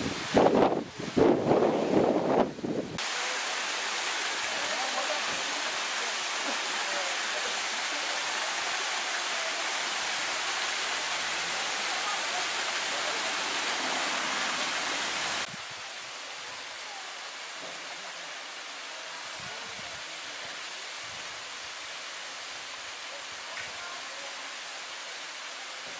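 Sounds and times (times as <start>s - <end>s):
waterfall rushing over rock: 0.0s - 25.9s.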